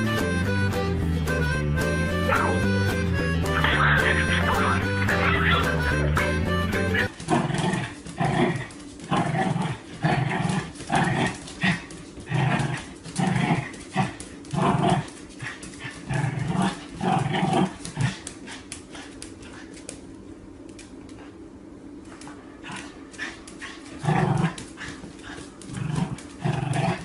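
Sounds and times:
dog growling: 0:06.9 - 0:19.8, 0:22.6 - 0:27.0.

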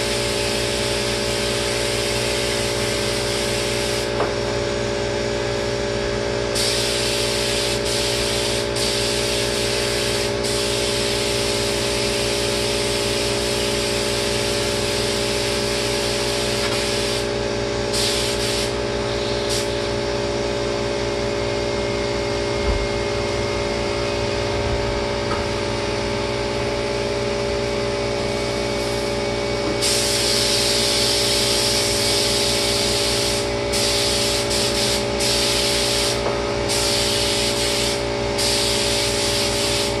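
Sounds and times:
paint spray gun hissing: 0:00.0 - 0:04.2, 0:06.5 - 0:17.3, 0:17.9 - 0:19.9, 0:29.8 - 0:40.0
steady machine hum: 0:00.0 - 0:40.0.

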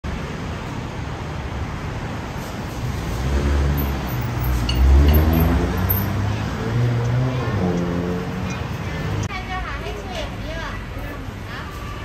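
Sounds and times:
street traffic: 0:00.0 - 0:12.0
vehicle engine passing by: 0:02.4 - 0:09.3.

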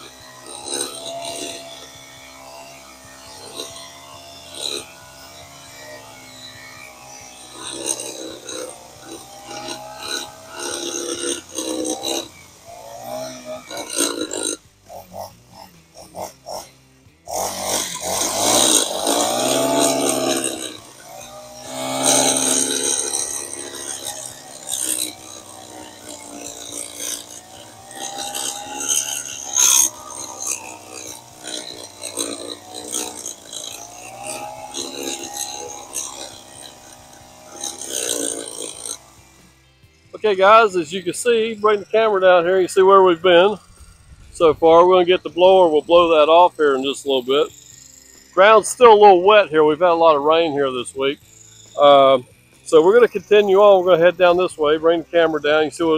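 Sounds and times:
blade rasping against dirt: 0:00.0 - 0:55.9
power edger engine running: 0:00.0 - 0:55.9.

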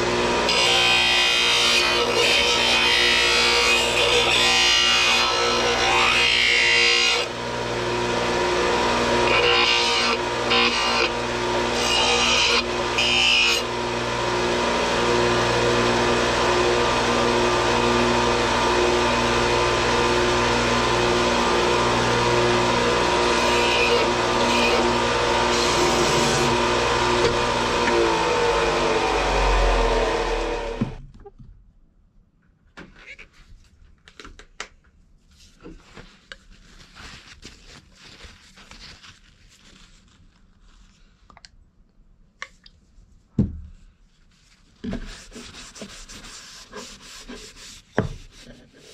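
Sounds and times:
electric disc sander running: 0:06.9 - 0:31.0
wooden spoon scratching on sander: 0:23.3 - 0:26.7, 0:44.4 - 0:48.9.

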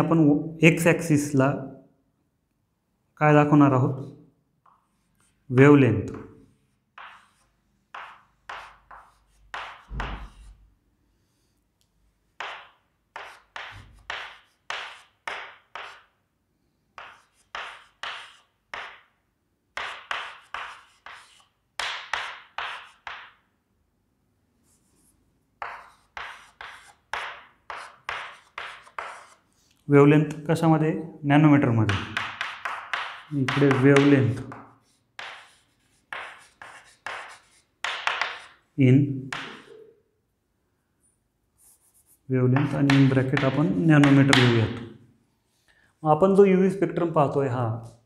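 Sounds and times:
chalk tapping on chalkboard: 0:04.6 - 0:05.4, 0:06.1 - 0:10.6, 0:12.4 - 0:16.2, 0:17.0 - 0:19.1, 0:19.7 - 0:23.4, 0:24.7 - 0:29.4, 0:31.9 - 0:38.6, 0:39.3 - 0:39.9, 0:41.6 - 0:44.8.

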